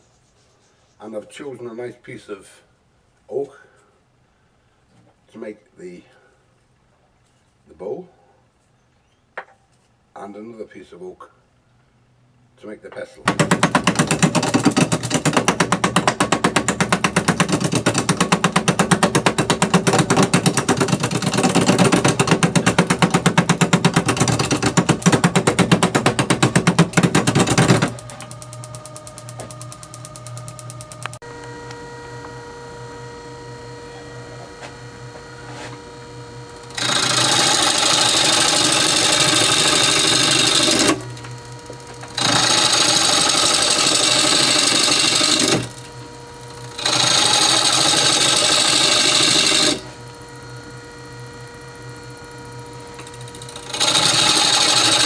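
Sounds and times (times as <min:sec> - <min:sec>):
gouge chattering on lathe blank: 0:13.3 - 0:31.2, 0:36.6 - 0:41.1, 0:41.9 - 0:45.8, 0:46.6 - 0:49.8, 0:53.4 - 0:55.0
lathe motor hum: 0:13.3 - 0:55.0.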